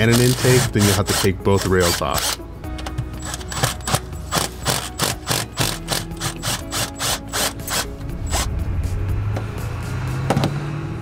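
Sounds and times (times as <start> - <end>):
ratchet clicking: 0.0 - 8.5.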